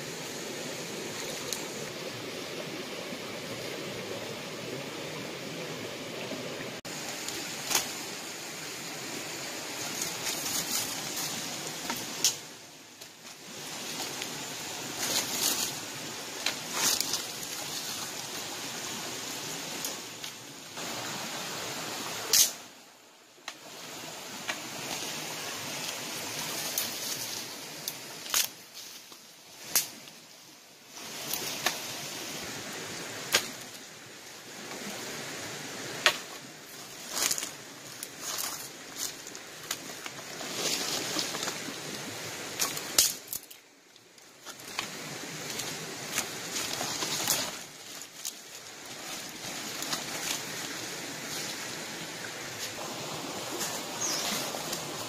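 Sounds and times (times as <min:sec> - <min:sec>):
dry leaves rustling underfoot: 0:06.9 - 0:21.1, 0:23.6 - 0:30.1, 0:36.2 - 0:55.0
twigs snapping: 0:22.3 - 0:22.6, 0:27.8 - 0:30.0, 0:42.6 - 0:50.7.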